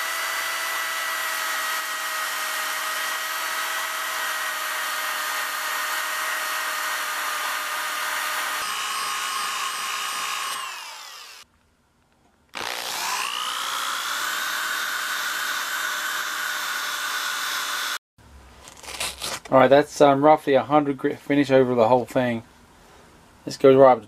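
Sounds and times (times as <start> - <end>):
orbital sander whining on metal: 0.0 - 11.4, 12.6 - 18.0.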